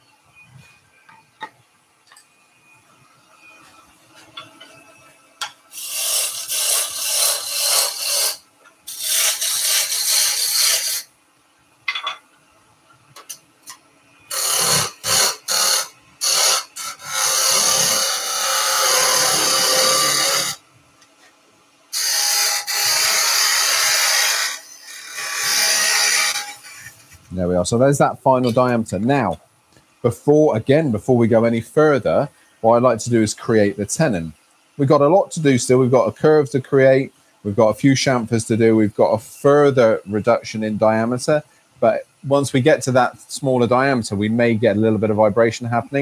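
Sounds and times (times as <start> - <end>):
lathe tool scraping wood: 5.8 - 11.1, 14.3 - 20.6, 22.0 - 27.1.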